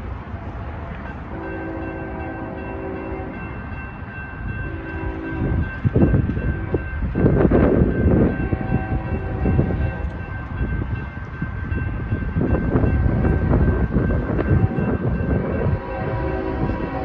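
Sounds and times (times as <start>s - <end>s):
crossing warning bell ringing: 1.0s - 17.0s
faint train horn: 1.3s - 3.5s, 4.5s - 5.7s, 8.2s - 10.2s, 12.7s - 17.0s.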